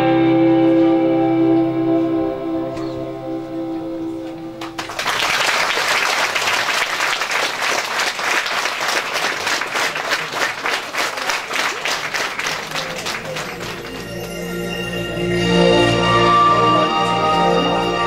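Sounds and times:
audience applauding: 4.6s - 15.1s.

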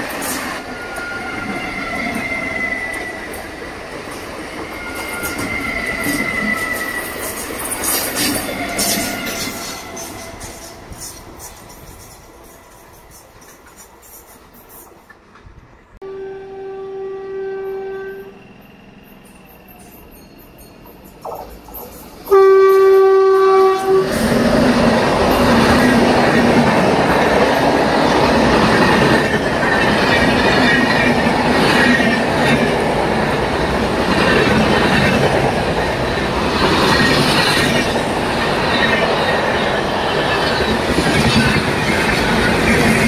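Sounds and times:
train wheels rushing on rails: 0.0s - 16.0s, 17.6s - 43.0s
locomotive horn blast: 16.0s - 18.5s, 22.3s - 24.3s.

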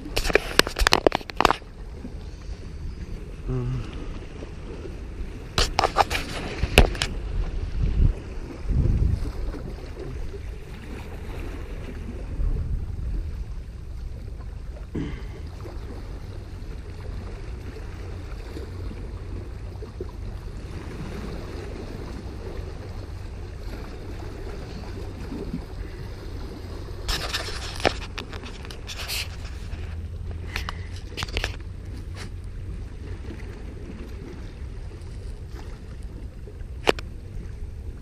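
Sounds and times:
wind on microphone: 0.0s - 38.0s
waves washing against rocks: 3.2s - 38.0s
microphone handling noise: 27.0s - 32.4s.

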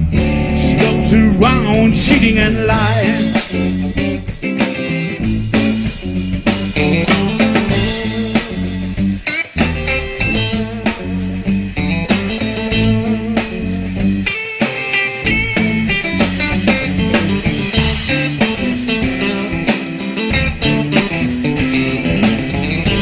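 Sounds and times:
bass guitar: 0.0s - 23.0s
electric guitar lead: 0.0s - 23.0s
drum beat: 0.1s - 4.5s.

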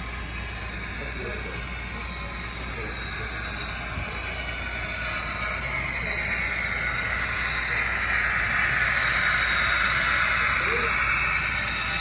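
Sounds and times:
model train running on track: 0.0s - 12.0s.

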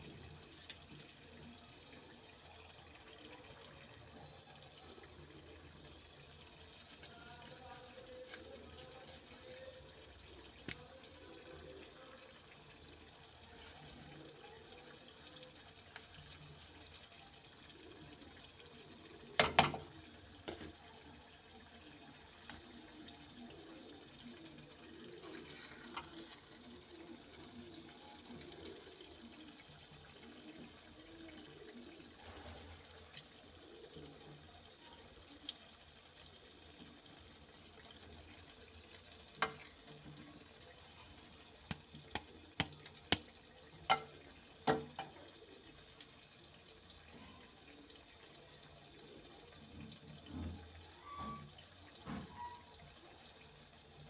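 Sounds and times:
thick curry being stirred: 22.1s - 31.2s
spoon knocking against pot: 43.9s - 44.1s.

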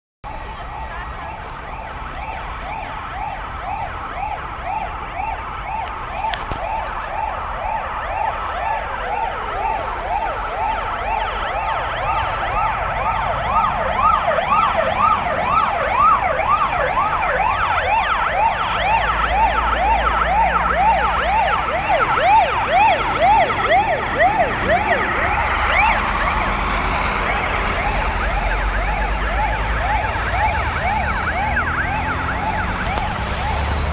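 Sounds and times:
truck engines rumbling: 0.2s - 33.9s
fire truck sirens yelping: 0.3s - 33.9s.

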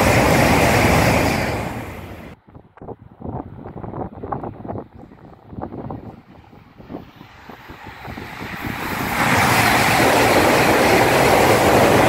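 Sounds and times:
bullet train passing: 0.0s - 2.4s, 4.4s - 12.0s.

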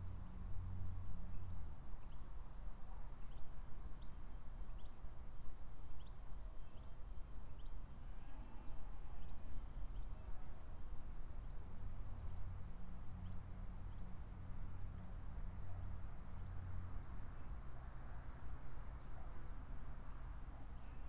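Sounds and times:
thin whistled bird notes: 7.6s - 10.6s.

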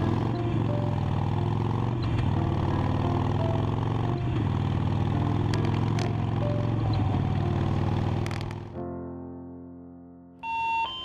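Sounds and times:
motorcycle engine running: 0.0s - 8.8s.

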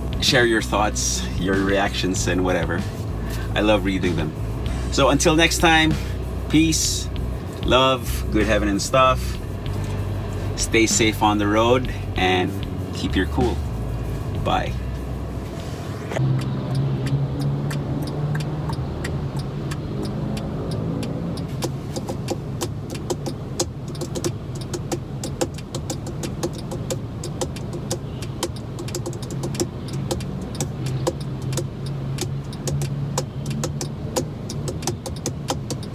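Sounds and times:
car engine idling: 0.0s - 35.9s
quick irregular clicks and taps: 16.4s - 35.9s.

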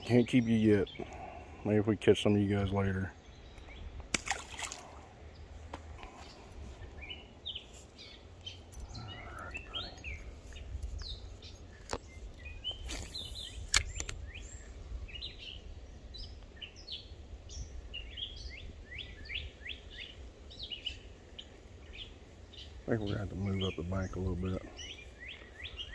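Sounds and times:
songbirds chirping: 0.0s - 25.9s
swish and sharp click: 12.9s - 14.2s.

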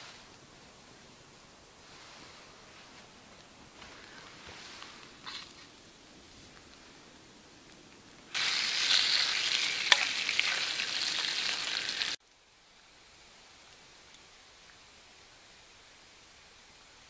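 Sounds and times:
sharp crackles: 0.0s - 7.0s
burger patty sizzling: 8.3s - 12.2s.

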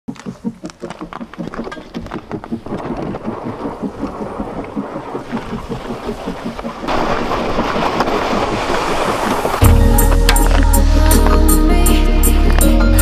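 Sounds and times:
boots crunching on ice: 0.1s - 3.6s
plastic sled scraping on ice: 6.9s - 11.5s.

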